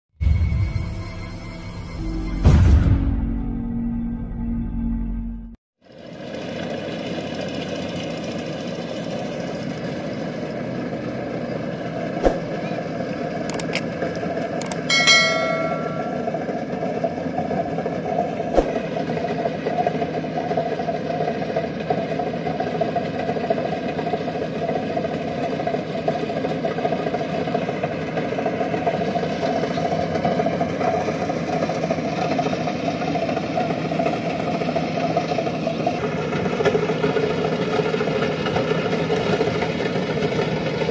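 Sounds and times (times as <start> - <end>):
combine harvester engine running: 5.9 - 40.9
sharp clicks: 13.5 - 13.9, 14.6 - 14.9
short high-pitched sound: 14.6 - 16.4.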